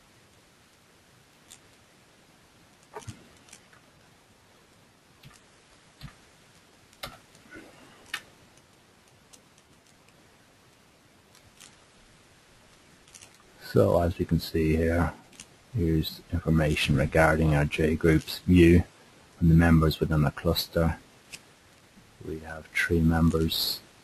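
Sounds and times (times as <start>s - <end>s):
low background hiss: 0.0s - 24.0s
computer mouse clicks: 5.2s - 6.2s, 8.0s - 10.2s.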